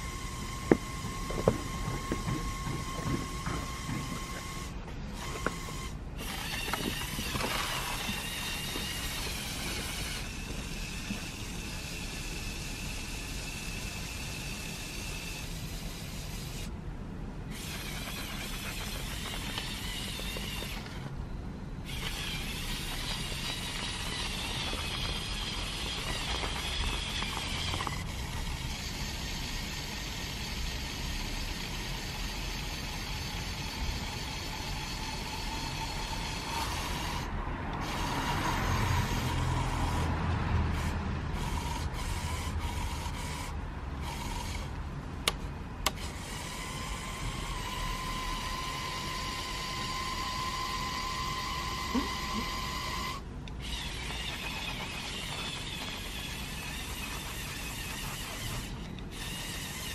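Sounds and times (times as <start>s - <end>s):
toy electric motors whining: 0.0s - 16.8s, 17.4s - 59.9s
sharp clicks: 44.6s - 46.5s.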